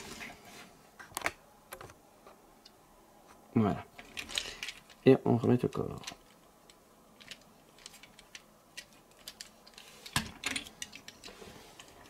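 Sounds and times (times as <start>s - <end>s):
plastic toy parts clicking and knocking: 4.0s - 5.0s, 5.6s - 11.9s.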